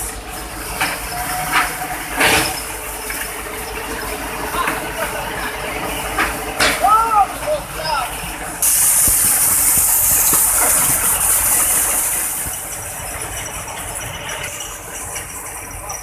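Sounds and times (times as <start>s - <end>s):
diesel engine running: 0.0s - 16.0s
loud steady hiss: 0.0s - 16.0s.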